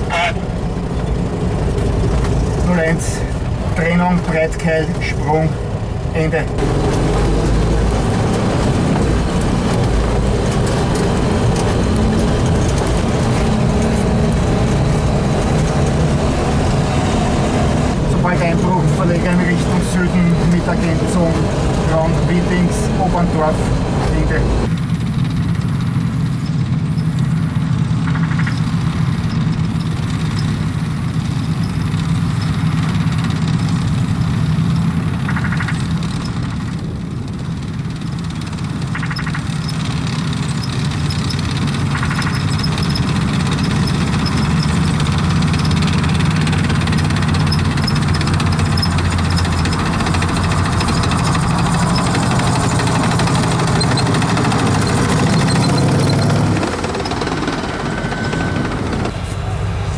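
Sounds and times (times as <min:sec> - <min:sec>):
tracked vehicle engines droning: 0:00.0 - 0:59.9.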